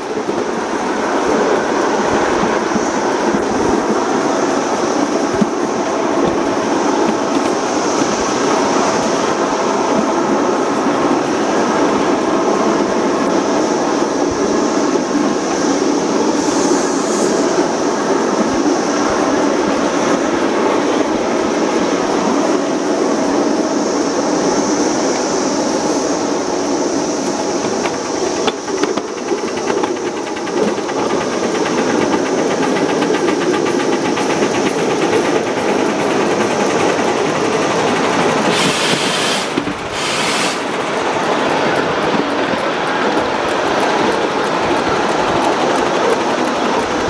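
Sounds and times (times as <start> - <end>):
small train wheels clattering on rails: 0.0 - 47.0
steam hissing: 0.0 - 47.0
rapid regular clicking: 27.2 - 38.7.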